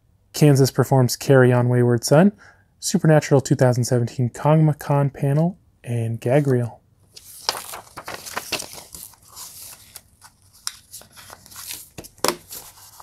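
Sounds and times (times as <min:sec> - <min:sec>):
paper rustling and crinkling: 0:07.1 - 0:13.0.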